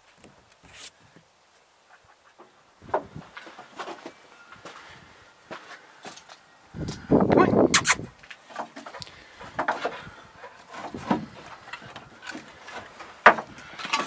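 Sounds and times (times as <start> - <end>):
logs knocking and scraping: 2.3 - 4.2, 8.2 - 14.0.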